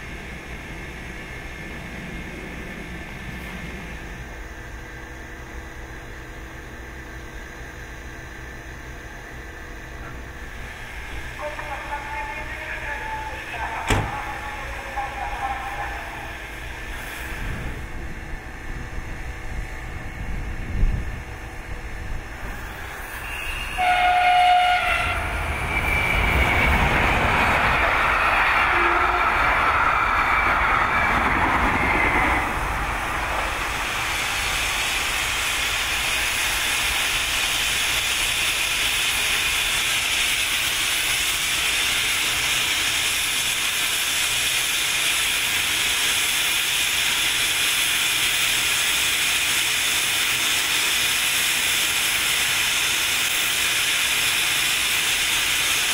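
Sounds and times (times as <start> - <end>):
hiss of steam: 15.6 - 17.8, 32.5 - 55.9
steam locomotive whistle: 23.2 - 26.8, 28.0 - 29.7.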